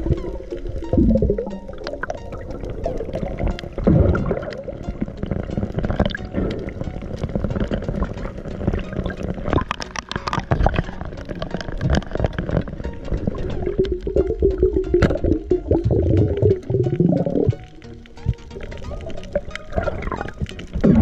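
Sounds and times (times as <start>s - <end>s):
sharp clicks and crackles: 0.0s - 21.0s
underwater gurgling: 0.0s - 21.0s.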